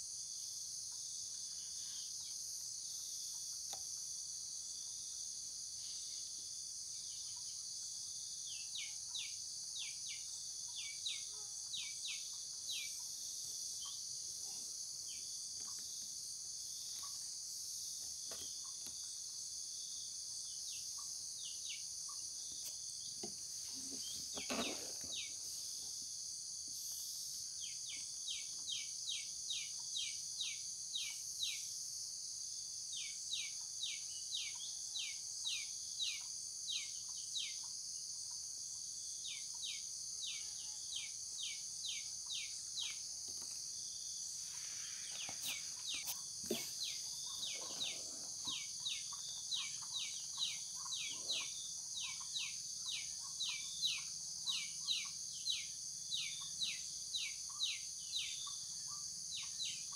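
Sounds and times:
bird chirping: 39.2s - 59.9s.

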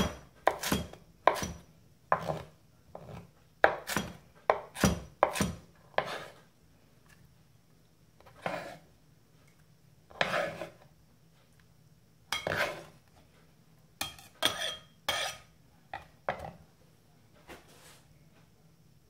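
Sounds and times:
knife scraping wooden board: 2.2s - 6.4s, 8.2s - 8.9s, 10.1s - 10.8s, 12.4s - 12.9s, 14.4s - 15.5s.

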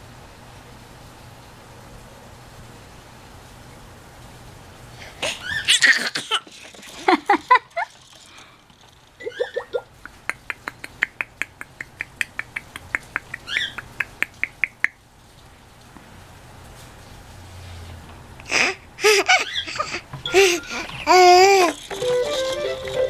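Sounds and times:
high squeaky chirps: 5.4s - 6.0s, 9.2s - 9.8s, 13.2s - 14.0s, 19.3s - 23.0s
baby cooing and squealing: 18.5s - 22.8s.

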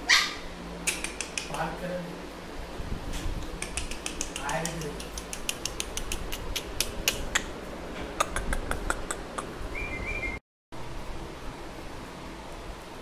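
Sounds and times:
puppy claws clicking on wooden floor: 3.6s - 7.2s.

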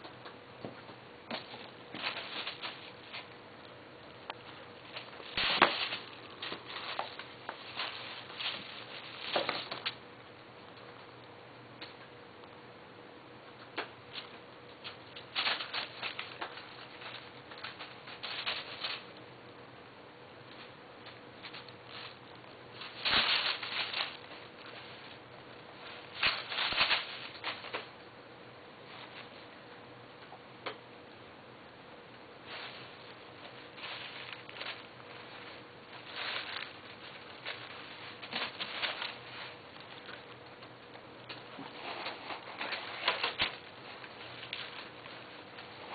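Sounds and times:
paper crinkling and rustling: 1.3s - 3.4s, 4.8s - 10.0s, 14.2s - 19.2s, 21.4s - 27.9s, 32.5s - 45.9s.

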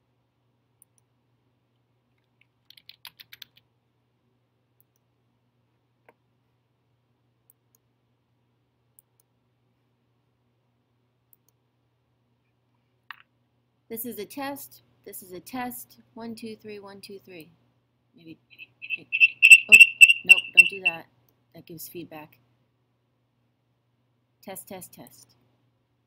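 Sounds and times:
laptop keyboard typing: 2.6s - 3.6s, 18.8s - 20.9s.

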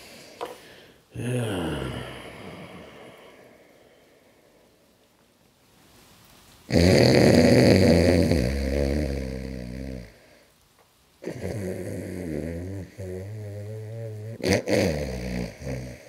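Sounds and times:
man snoring: 0.0s - 3.8s, 6.7s - 10.3s, 11.2s - 16.0s.

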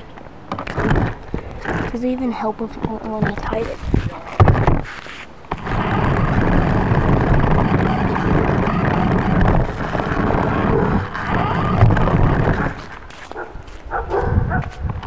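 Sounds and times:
toy car rumbling on concrete: 0.5s - 2.2s, 2.8s - 13.1s.

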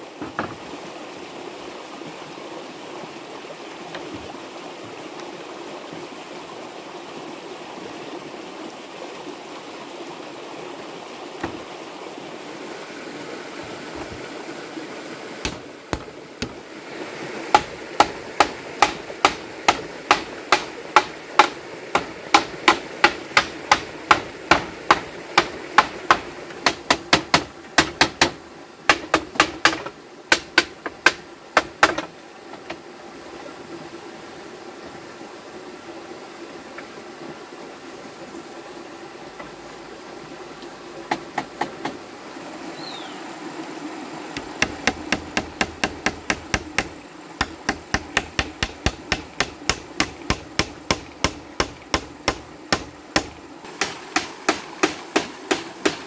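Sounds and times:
sharp wooden knocks: 0.2s - 0.6s, 11.4s - 11.7s, 15.4s - 16.6s, 17.5s - 32.8s, 41.1s - 42.0s, 44.4s - 56.0s.

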